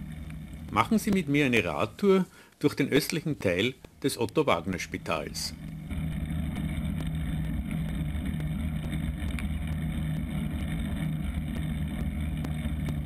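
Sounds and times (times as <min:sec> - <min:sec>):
bicycle tyre noise on asphalt: 0:00.0 - 0:02.0, 0:04.7 - 0:13.0
faint steady hum: 0:00.0 - 0:13.0
wind rumble: 0:04.9 - 0:13.0.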